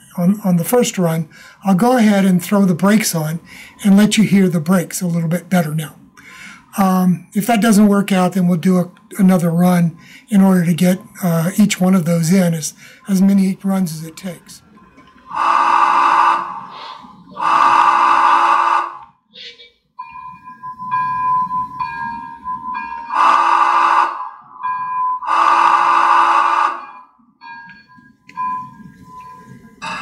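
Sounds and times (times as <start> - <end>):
model train steam whistle: 15.3 - 16.6, 17.4 - 19.0, 23.1 - 24.3, 25.2 - 26.9
faint wavering tone: 20.0 - 23.1, 24.4 - 25.3, 26.8 - 30.0.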